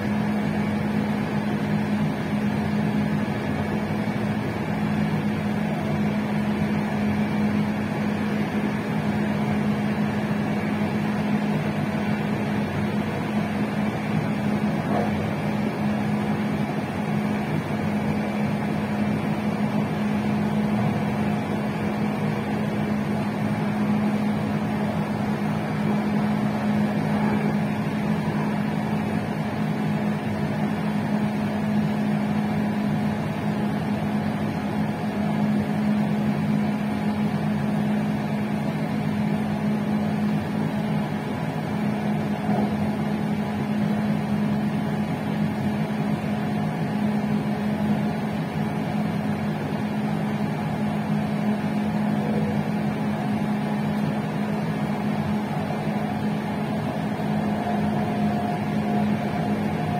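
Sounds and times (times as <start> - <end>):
electrical hum: 0.0 - 59.9
electric train running: 52.0 - 59.9.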